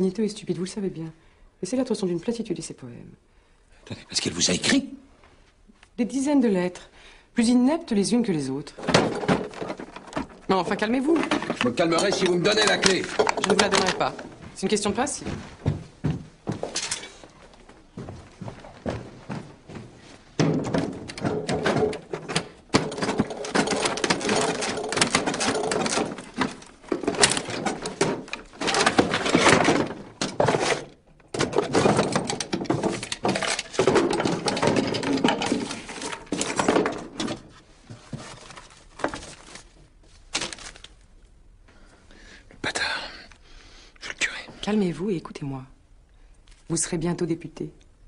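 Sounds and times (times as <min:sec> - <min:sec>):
desk lock rattling and scraping: 0:08.8 - 0:14.3, 0:20.4 - 0:37.7.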